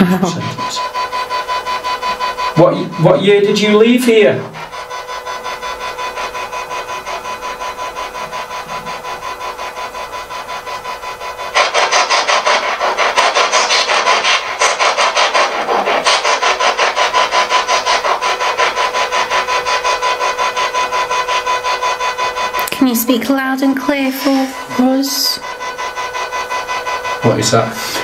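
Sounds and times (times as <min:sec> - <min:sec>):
radio static pulsing: 0:00.0 - 0:28.0
steady tone: 0:00.0 - 0:28.0.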